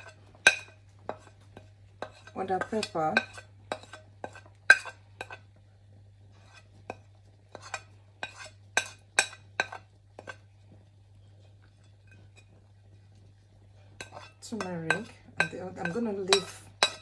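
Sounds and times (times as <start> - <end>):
metal spoon clinking on ceramic plate: 0.0 - 1.3, 14.0 - 17.0.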